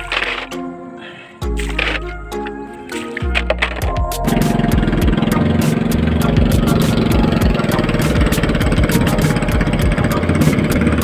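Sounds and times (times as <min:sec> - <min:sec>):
small boat engine running: 0:04.0 - 0:11.0.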